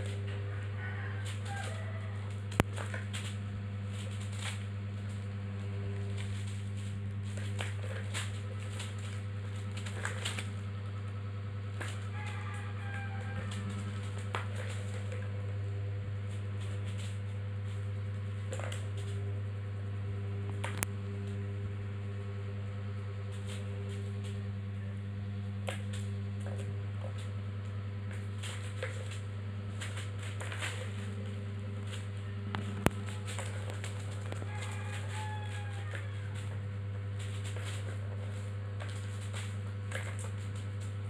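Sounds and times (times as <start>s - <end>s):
steady low hum: 0.0s - 41.0s.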